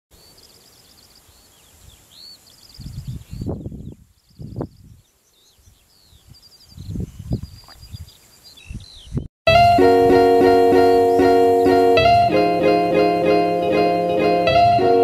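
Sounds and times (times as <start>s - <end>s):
songbirds singing: 0.1s - 9.3s
wind gusts on microphone: 2.7s - 9.3s.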